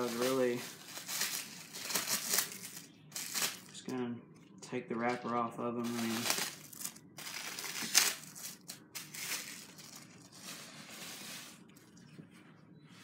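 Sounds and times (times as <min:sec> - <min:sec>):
wrapper crinkling and tearing: 0:00.0 - 0:03.7, 0:05.8 - 0:10.5.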